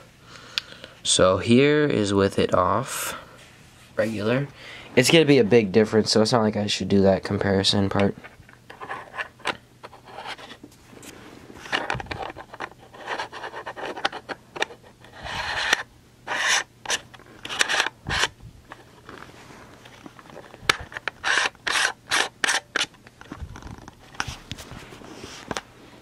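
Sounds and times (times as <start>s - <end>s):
fingers rubbing camera lens: 12.1s - 18.3s, 20.6s - 24.4s.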